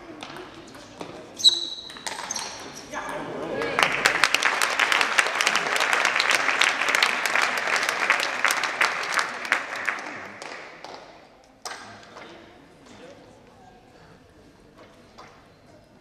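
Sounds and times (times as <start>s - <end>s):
spectators clapping: 3.6s - 11.2s.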